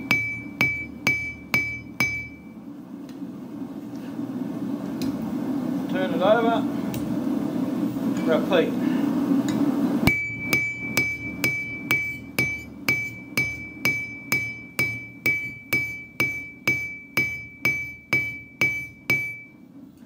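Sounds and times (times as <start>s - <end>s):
hammer striking metal on anvil: 0.0s - 2.5s, 10.1s - 19.6s.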